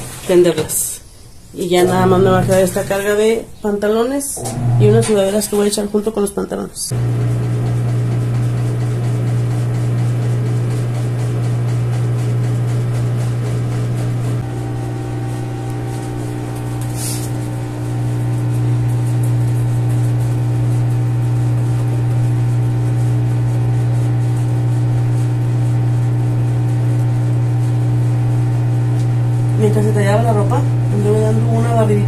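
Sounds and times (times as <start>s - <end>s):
washing machine motor hum: 1.7s - 3.2s, 4.4s - 5.4s, 6.9s - 32.0s
brief hiss: 16.8s - 17.4s.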